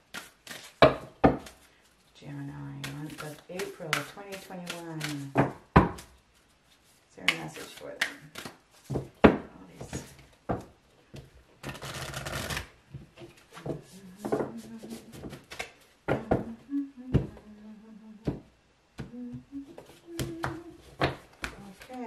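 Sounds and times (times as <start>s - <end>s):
cards shuffling: 0.0s - 0.8s, 2.8s - 5.4s, 6.0s - 9.0s, 11.6s - 12.7s, 14.3s - 16.0s, 19.8s - 22.0s
cards and box tapping: 20.1s - 22.0s.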